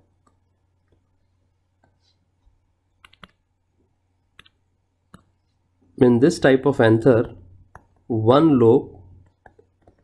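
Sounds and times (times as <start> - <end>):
low steady hum: 0.0 - 10.0
stylus tapping on tablet screen: 1.8 - 3.5, 4.3 - 5.4, 7.6 - 8.1, 9.2 - 10.0.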